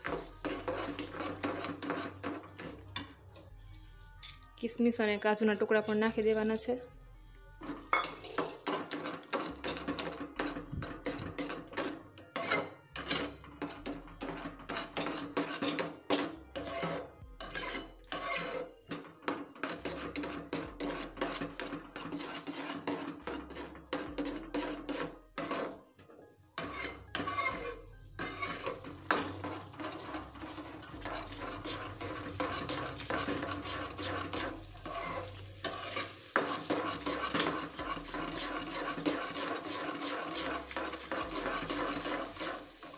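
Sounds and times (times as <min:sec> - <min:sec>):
spatula scraping a metal pan: 0:00.0 - 0:03.2, 0:07.6 - 0:42.9
metal clinking on pan: 0:07.9 - 0:10.5.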